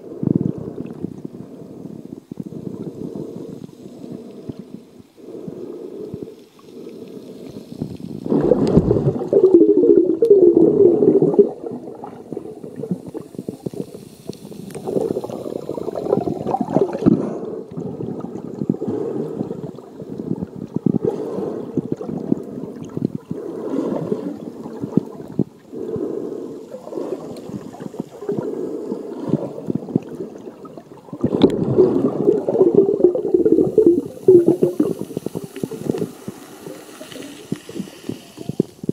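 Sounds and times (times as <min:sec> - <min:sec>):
muffled underwater sloshing: 0:00.0 - 0:38.9.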